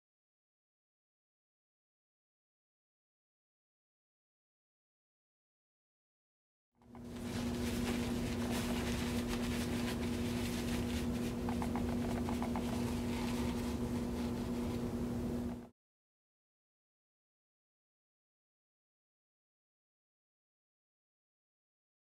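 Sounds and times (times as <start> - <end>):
steady low hum: 6.8 - 15.7
paper towel crinkling: 7.0 - 15.2.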